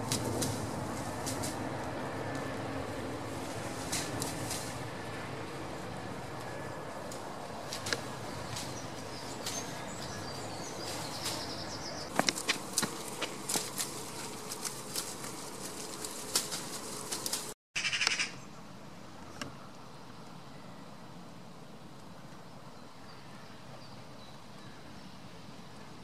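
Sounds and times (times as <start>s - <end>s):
goat hooves on paving stones: 6.3s - 17.6s.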